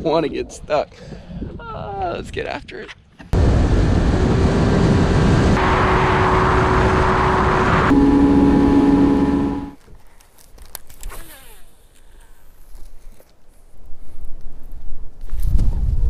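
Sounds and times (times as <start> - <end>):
outboard motor drone: 3.4 - 9.8.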